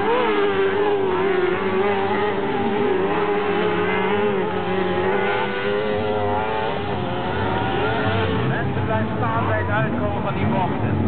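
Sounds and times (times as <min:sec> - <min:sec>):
kart engines racing at high revs: 0:00.0 - 0:11.0.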